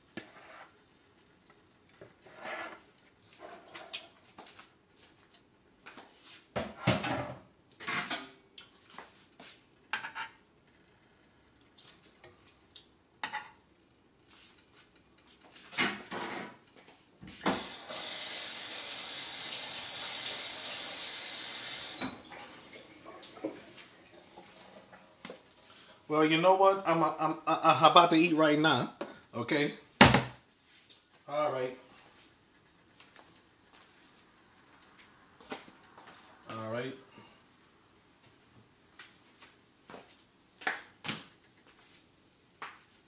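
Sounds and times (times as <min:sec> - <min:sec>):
water running from a tap: 0:17.6 - 0:24.9.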